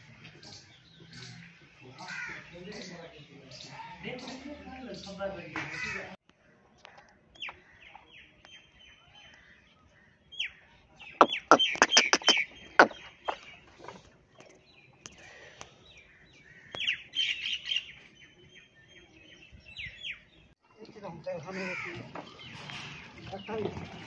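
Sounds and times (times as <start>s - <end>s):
birds chirping: 0.0s - 24.0s
rapid harsh bird calls: 10.4s - 14.0s.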